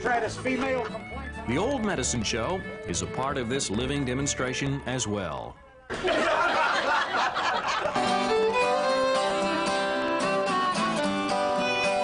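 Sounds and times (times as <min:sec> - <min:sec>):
acoustic guitar playing: 0:00.0 - 0:05.6, 0:06.7 - 0:12.0
fiddle playing: 0:07.9 - 0:12.0.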